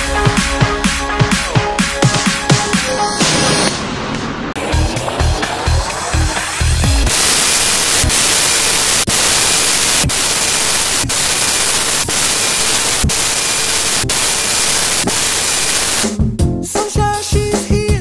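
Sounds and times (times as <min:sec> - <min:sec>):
television music: 0:00.0 - 0:17.8
tv static hiss: 0:05.8 - 0:16.1.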